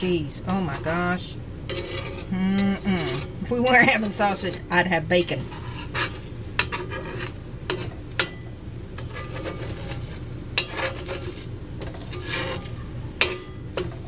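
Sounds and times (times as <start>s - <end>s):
metal spatula scraping iron pan: 0.5s - 14.0s
metal clinking on iron pan: 5.2s - 10.0s, 10.6s - 14.0s.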